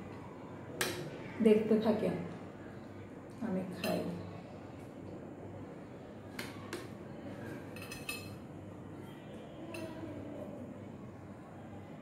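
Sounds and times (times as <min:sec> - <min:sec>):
metal spoon clinking on plates: 0:03.8 - 0:04.2, 0:07.6 - 0:08.5, 0:09.6 - 0:10.1.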